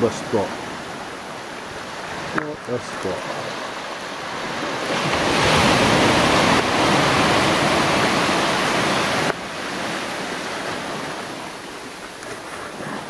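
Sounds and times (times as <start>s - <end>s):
sea waves washing over rocks: 0.0s - 13.0s.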